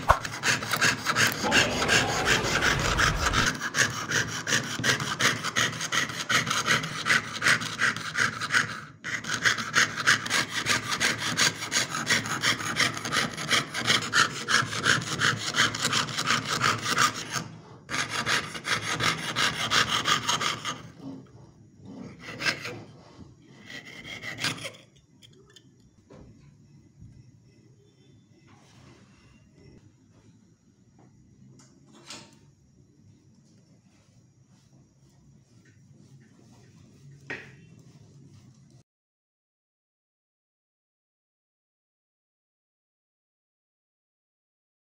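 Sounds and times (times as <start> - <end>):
saw cutting thin metal sheet: 0.0 - 21.2.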